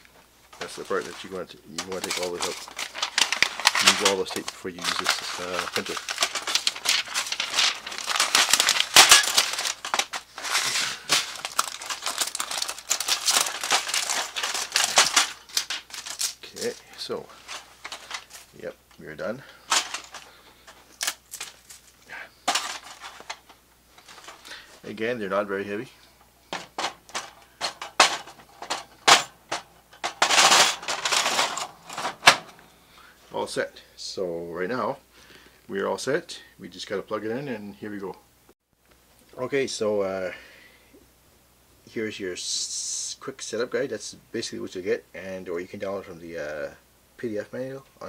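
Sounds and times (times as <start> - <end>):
tape peeling and crinkling: 0.6 - 18.6, 19.8 - 24.5.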